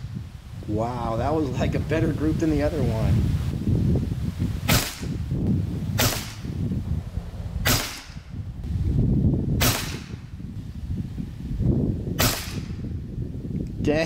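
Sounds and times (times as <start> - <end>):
air rifle shots cracking: 4.6 - 5.2, 6.0 - 6.6, 7.6 - 8.4, 9.6 - 10.3, 12.2 - 12.9.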